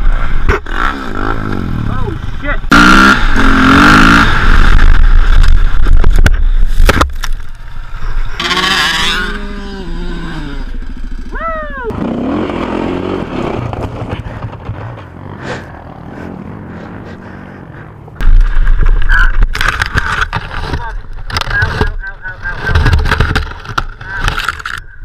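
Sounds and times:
dirt bike engine revving: 0:00.2 - 0:06.1, 0:07.6 - 0:20.8.

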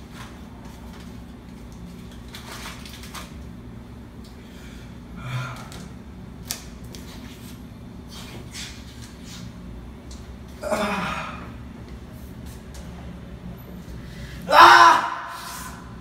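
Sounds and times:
rustling and handling noises: 0:00.0 - 0:03.6
low room hum: 0:00.0 - 0:16.0.

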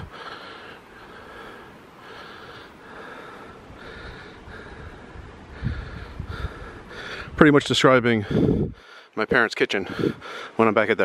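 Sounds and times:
person breathing: 0:00.0 - 0:07.4, 0:08.2 - 0:09.2, 0:09.8 - 0:10.6.

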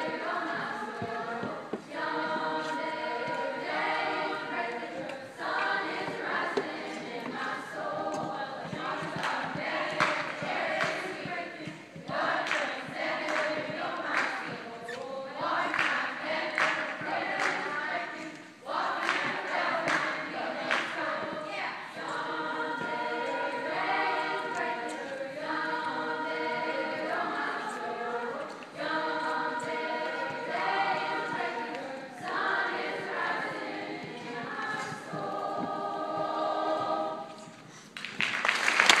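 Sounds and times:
choir singing: 0:00.0 - 0:37.7
applause: 0:38.0 - 0:39.0.

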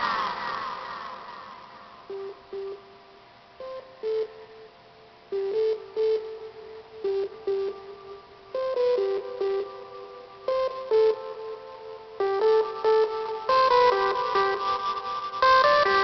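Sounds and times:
sparse synth melody: 0:05.3 - 0:16.0.

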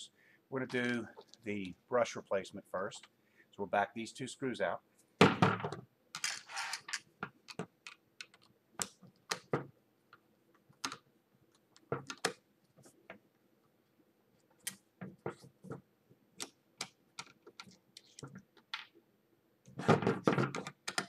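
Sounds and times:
clicks and knocks of handling: 0:19.7 - 0:21.0.

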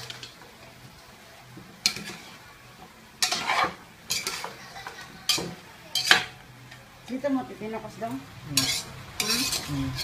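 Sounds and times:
faint sizzle: 0:00.0 - 0:10.0
spatula scraping a metal pot: 0:03.2 - 0:04.6, 0:08.6 - 0:10.0.

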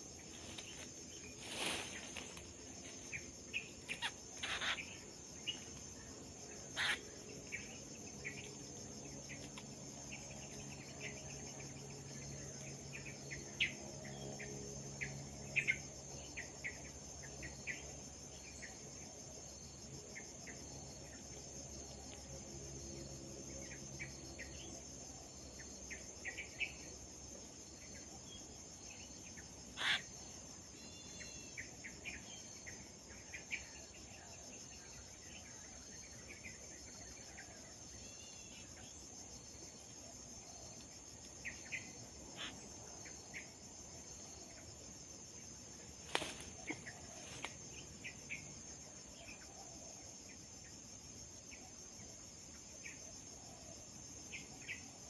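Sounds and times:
insects shrilling: 0:00.0 - 0:05.9, 0:06.5 - 0:07.6, 0:29.6 - 0:30.3, 0:46.0 - 0:47.7.

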